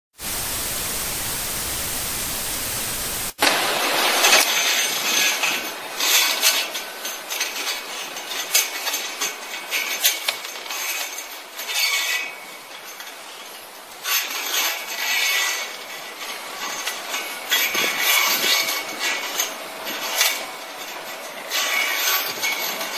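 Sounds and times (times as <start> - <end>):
static hiss: 0.1 - 4.4.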